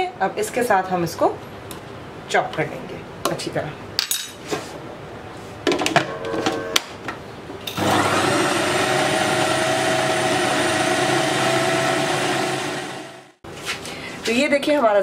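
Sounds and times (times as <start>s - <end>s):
food processor running: 7.7s - 13.4s.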